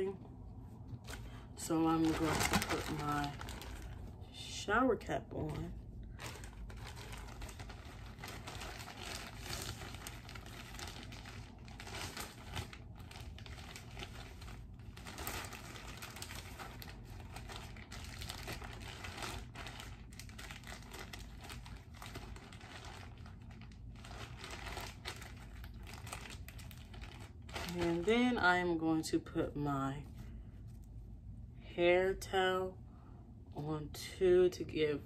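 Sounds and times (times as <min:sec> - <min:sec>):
plastic shower cap rustling: 0:00.8 - 0:04.2, 0:05.5 - 0:28.4.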